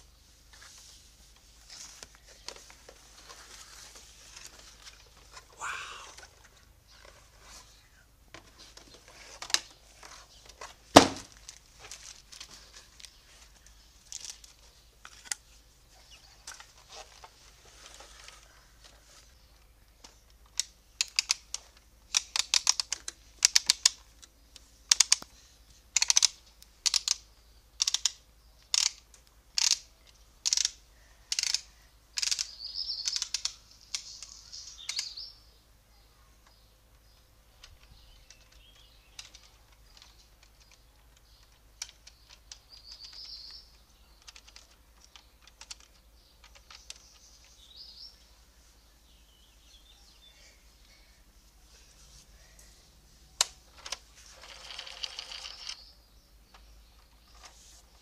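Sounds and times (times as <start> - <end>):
toy crane ratchet clicking: 20.5 - 24.0, 24.9 - 25.3, 26.0 - 34.2, 53.8 - 55.8.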